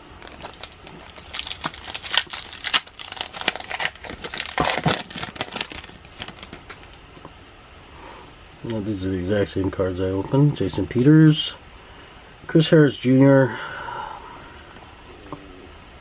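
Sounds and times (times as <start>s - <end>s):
plastic wrapper crinkling: 0.2s - 7.0s.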